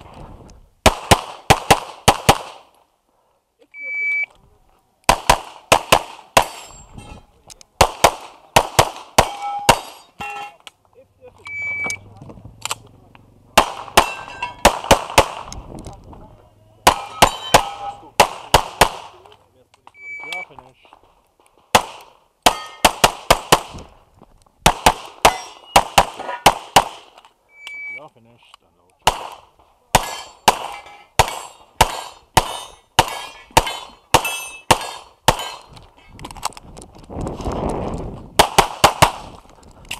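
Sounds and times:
pistol shots in pairs: 0.8s - 2.7s, 5.1s - 6.7s, 7.8s - 10.3s, 13.6s - 15.6s, 16.8s - 19.3s, 21.7s - 23.9s, 24.6s - 27.2s, 29.0s - 35.7s, 38.4s - 39.3s
pistol shots with short echo: 13.6s - 15.5s, 16.8s - 19.2s, 29.0s - 35.7s.

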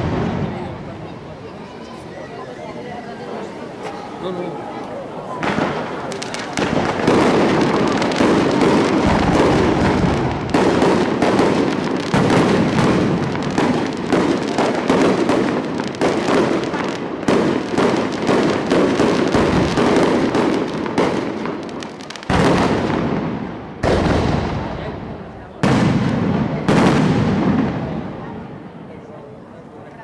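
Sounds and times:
fireworks bangs and crackles: 0.0s - 30.0s.

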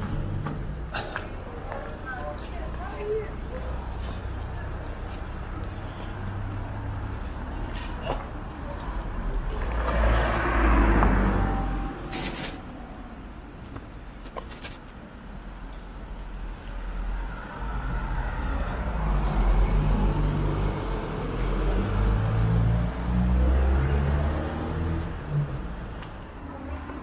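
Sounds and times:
cars passing on wet street: 0.7s - 14.0s, 16.1s - 27.0s.

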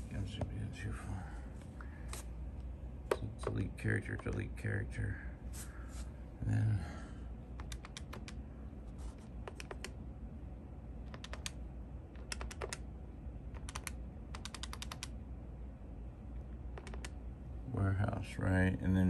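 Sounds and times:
phone keypad keys clicking: 7.6s - 8.4s, 9.4s - 10.0s, 11.1s - 11.6s, 12.2s - 12.8s, 13.6s - 15.1s, 16.7s - 17.2s.

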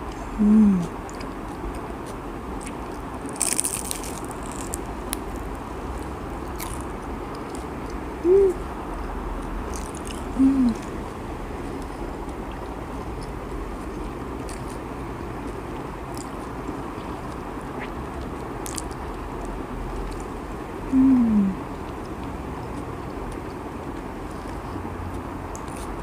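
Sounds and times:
woman chewing: 0.0s - 8.6s, 9.4s - 19.2s
woman humming mmm: 0.2s - 0.9s, 8.2s - 8.7s, 10.3s - 10.9s, 20.9s - 21.6s.

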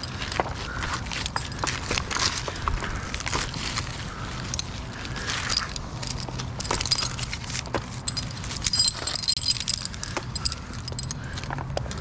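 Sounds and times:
climbing hardware jangling: 0.0s - 2.7s, 4.4s - 11.6s.

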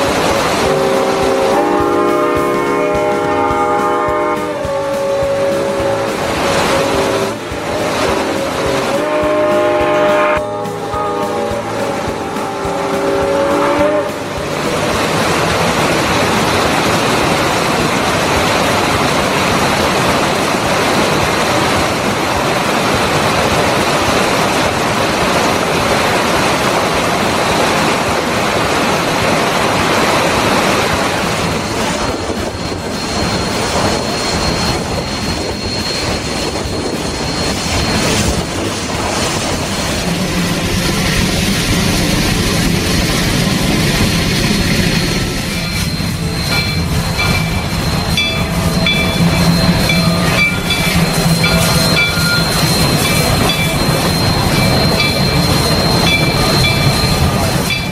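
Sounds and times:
steam locomotive whistle: 0.0s - 15.0s, 31.4s - 39.2s, 39.9s - 57.9s
rocky stream rushing: 0.0s - 57.9s
train wheels squealing on rails: 0.0s - 57.9s.

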